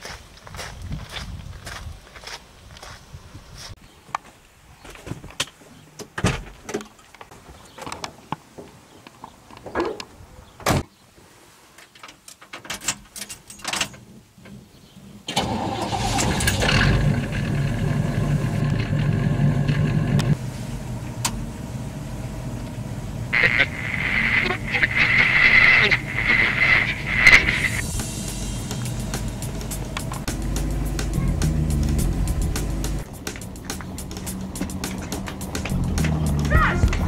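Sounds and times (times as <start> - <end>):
car engine starting and idling: 15.3 - 23.9, 26.9 - 37.0.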